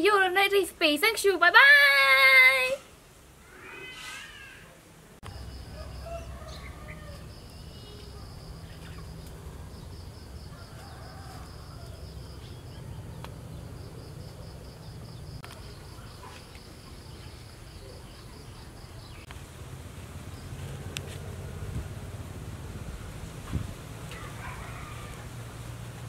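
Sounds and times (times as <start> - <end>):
insects trilling: 3.4 - 19.3
faint bird chirps: 5.3 - 9.9.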